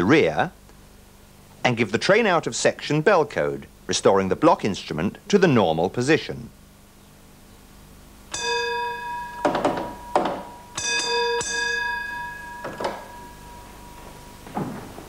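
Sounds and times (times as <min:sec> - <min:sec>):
block bells ringing: 0:08.3 - 0:14.8
sharp knocks: 0:08.3 - 0:15.0.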